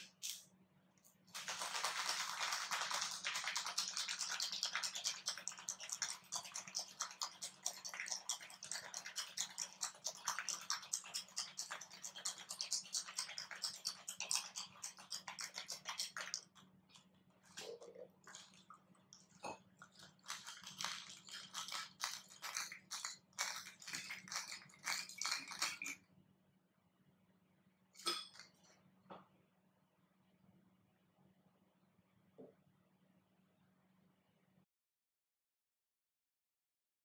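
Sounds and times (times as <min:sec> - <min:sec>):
ice rattling in metal cocktail shaker: 0:01.3 - 0:16.5, 0:19.8 - 0:26.0.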